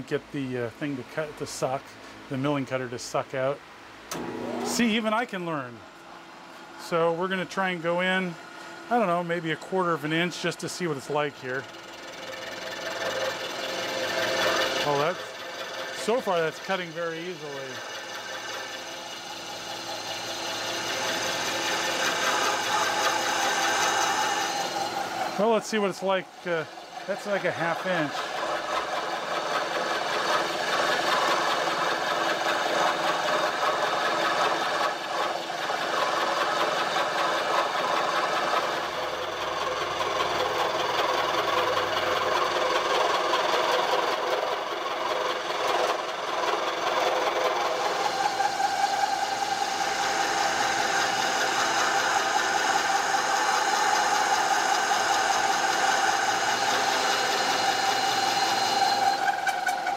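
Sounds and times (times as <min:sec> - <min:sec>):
milling machine running: 0:04.1 - 0:59.9
rattle of metal cutting: 0:09.8 - 0:59.9.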